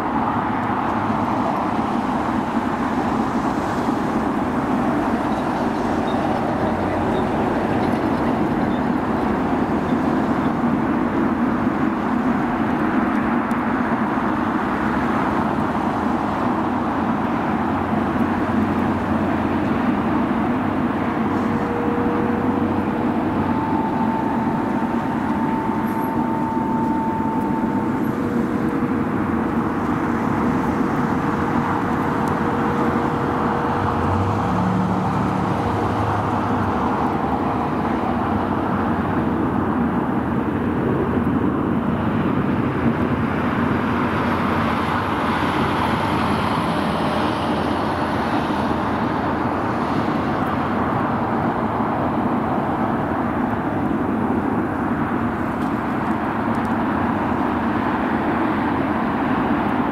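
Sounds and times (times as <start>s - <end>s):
airport and road traffic roar: 0.0s - 59.9s
faint whining tones: 19.9s - 39.3s.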